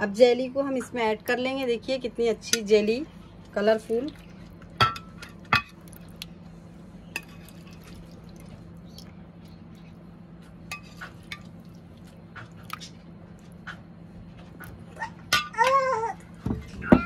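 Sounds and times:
steady low hum: 0.0 - 17.0
soft wet plops: 5.6 - 6.4.

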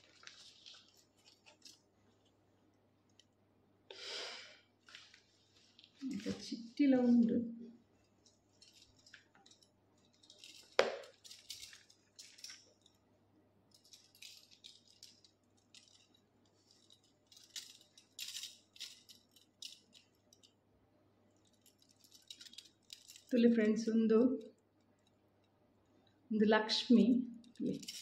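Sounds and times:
necklace chains jingling: 8.0 - 13.0, 13.7 - 20.6, 21.3 - 25.4, 27.3 - 28.0.

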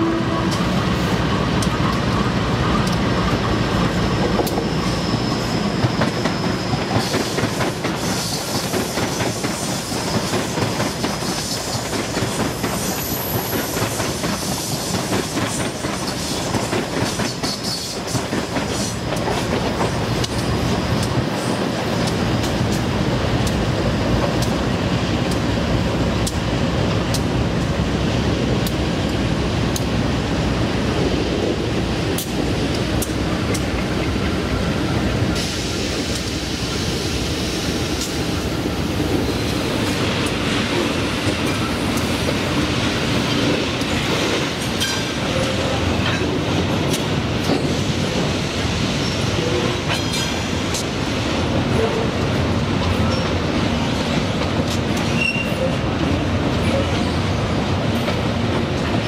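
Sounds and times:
diesel locomotives running: 0.0 - 59.0
faint wheel squeal: 55.2 - 55.8.

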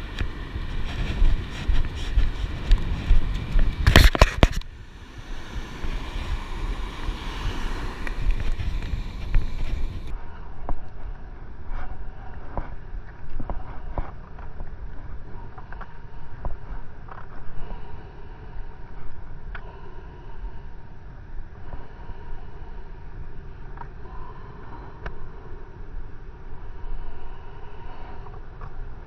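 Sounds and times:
surf on beach: 0.0 - 10.1
wind buffeting microphone: 0.0 - 15.6.

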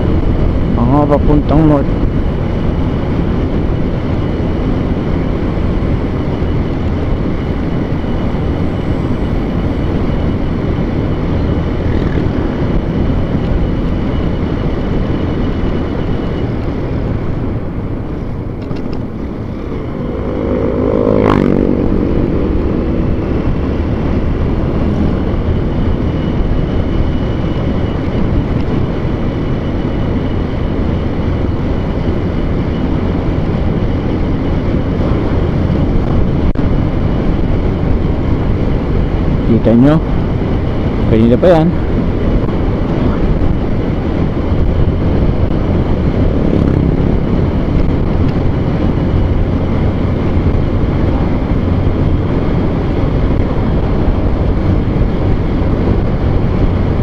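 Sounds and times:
vehicle engine and road noise: 0.0 - 57.0
engine revving: 7.9 - 13.2, 18.8 - 29.1, 44.8 - 56.2.

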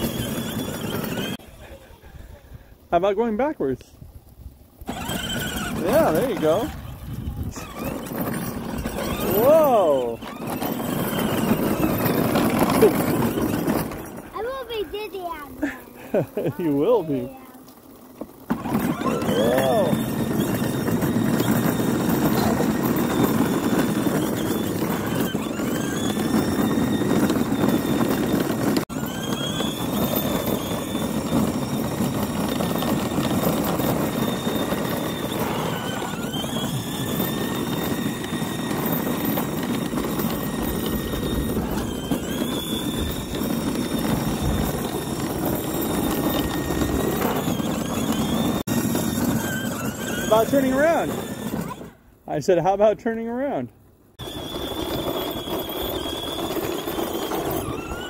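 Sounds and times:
electric motors whining: 0.0 - 2.9, 4.6 - 52.2, 54.1 - 58.0
plastic wheels rumbling on asphalt: 0.0 - 58.0.

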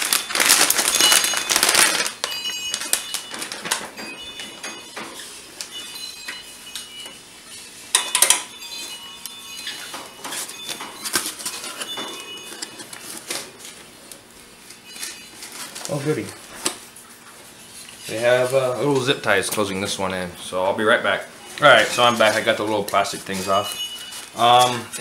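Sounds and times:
plastic bag crinkling: 0.0 - 4.9, 8.5 - 17.2, 21.6 - 25.0.

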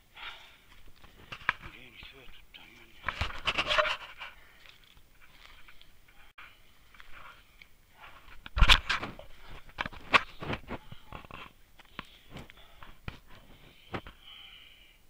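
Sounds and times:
person breathing hard: 0.0 - 1.5, 9.2 - 15.0
footsteps on stony dirt path: 0.6 - 14.2.

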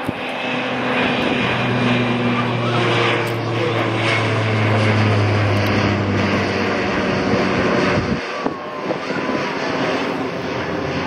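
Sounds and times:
aircraft engines droning: 0.0 - 11.0.

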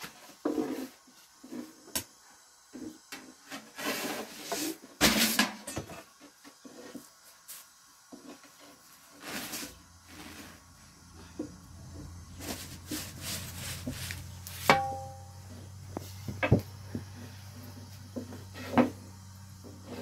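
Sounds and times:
dough and flour rustling: 6.5 - 20.0.

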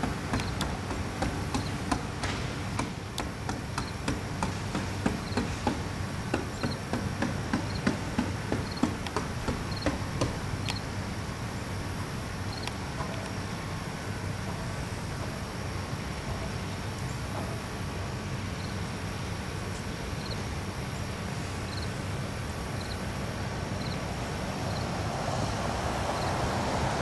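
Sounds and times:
sharp clicks and knocks: 0.0 - 10.8
high insect drone: 0.0 - 15.8, 18.4 - 27.0.

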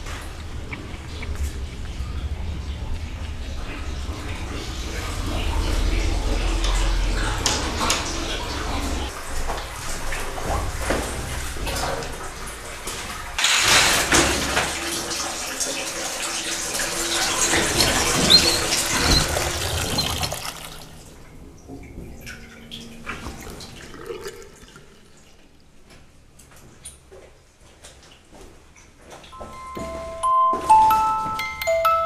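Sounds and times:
shower water spraying: 3.9 - 21.2.

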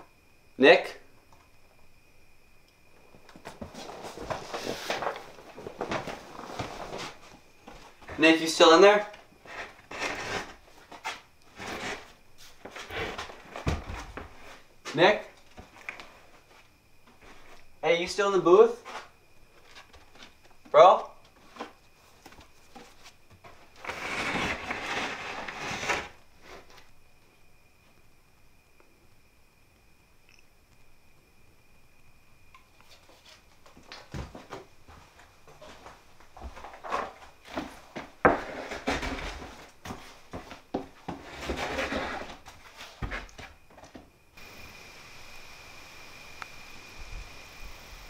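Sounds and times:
wooden door scraping open: 9.4 - 14.6, 23.8 - 26.2, 36.6 - 39.6, 41.1 - 43.5
door scraping as it swings: 23.8 - 26.1, 41.1 - 43.3.

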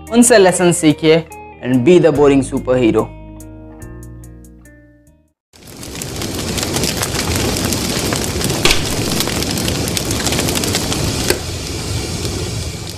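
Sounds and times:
flames burning and crackling: 5.5 - 12.9
fire pop: 5.6 - 12.9.

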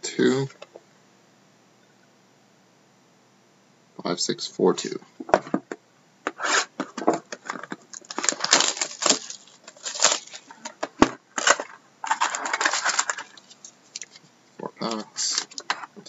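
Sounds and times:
cardboard lid tearing: 6.3 - 13.5
shrink wrap crinkling: 6.4 - 15.9.

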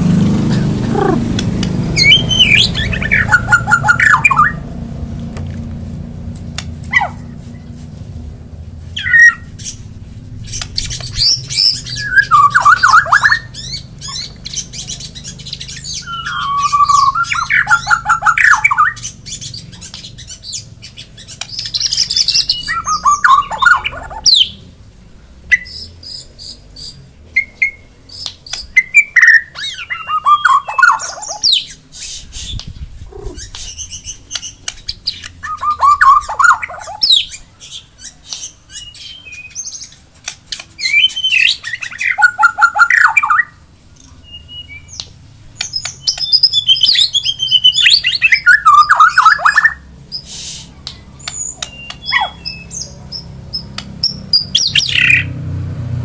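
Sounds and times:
bird warbling whistled phrases: 0.5 - 1.4, 2.0 - 4.6, 11.2 - 19.0, 21.8 - 24.5, 28.8 - 31.7, 32.4 - 34.2, 35.4 - 37.4, 40.8 - 43.5, 51.4 - 52.8.

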